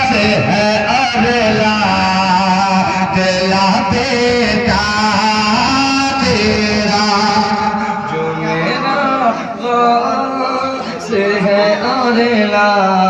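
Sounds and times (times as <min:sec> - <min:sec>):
man singing through a microphone: 0:00.0 - 0:13.0.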